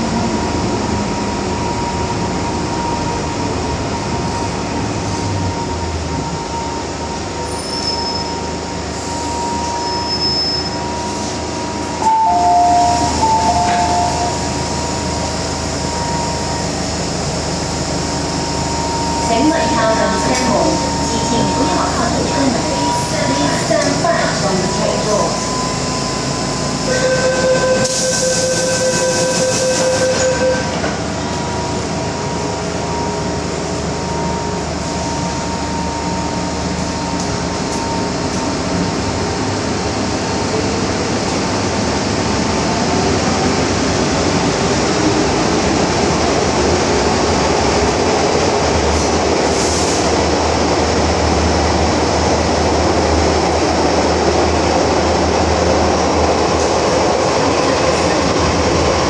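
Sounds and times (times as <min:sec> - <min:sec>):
rumble of wheels on track: 0:00.0 - 0:59.0
door-closing warning tone: 0:05.5 - 0:17.0, 0:18.2 - 0:33.4, 0:34.1 - 0:38.6.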